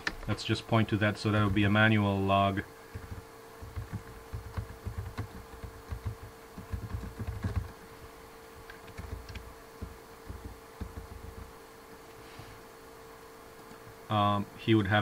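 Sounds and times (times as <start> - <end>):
steady hum: 0.0 - 15.0
typing on computer keyboard: 2.9 - 7.7, 8.7 - 11.5.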